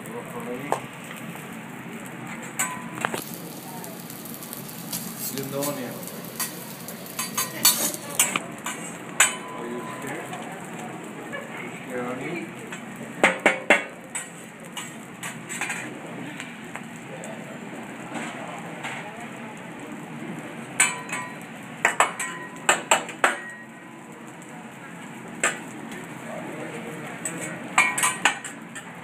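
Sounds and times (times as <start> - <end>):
restaurant chatter: 0.0 - 29.0
spatula clanking on steel griddle: 2.4 - 3.3, 4.4 - 10.4, 12.7 - 15.9, 20.8 - 23.8, 25.4 - 25.7, 27.2 - 29.0.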